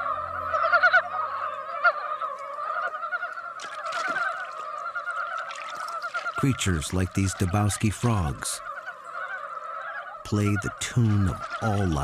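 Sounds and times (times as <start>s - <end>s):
chorus of frogs calling: 0.0s - 12.0s.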